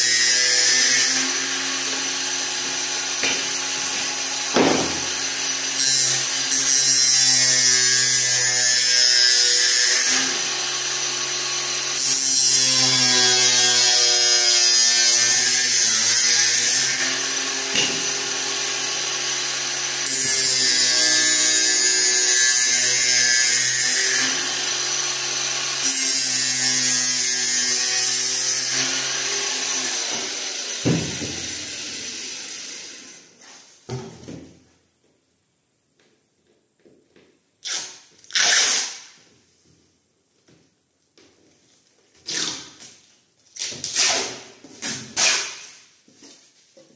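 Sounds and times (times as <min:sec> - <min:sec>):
power saw cutting panel: 0:00.0 - 0:33.4
knock: 0:04.6 - 0:05.1.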